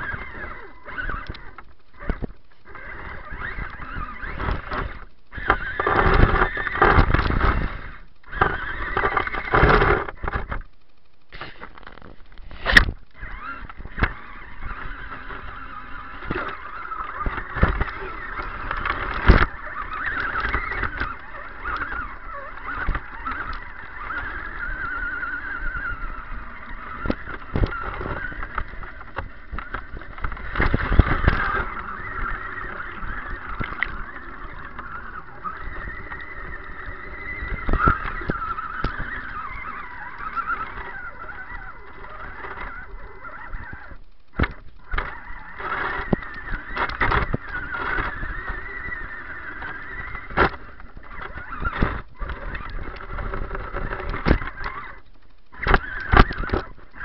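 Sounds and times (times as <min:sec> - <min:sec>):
electric motor whining: 0:00.0 - 0:57.0.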